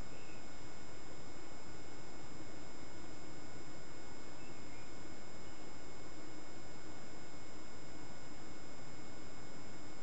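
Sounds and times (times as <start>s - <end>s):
faint electronic whining: 0.0s - 10.0s
microphone hiss: 0.0s - 10.0s.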